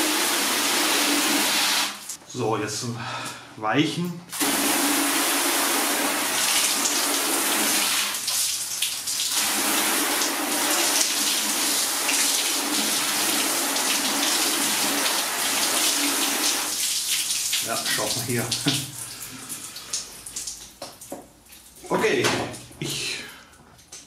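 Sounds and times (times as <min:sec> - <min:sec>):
hose water splashing on car: 0:04.3 - 0:21.8.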